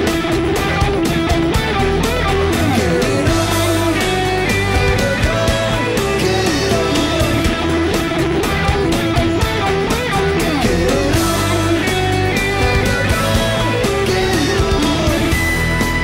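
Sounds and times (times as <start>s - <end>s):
bending guitar notes: 0.0s - 16.0s
rock music led by guitar: 0.0s - 16.0s
steady bass: 0.0s - 16.0s.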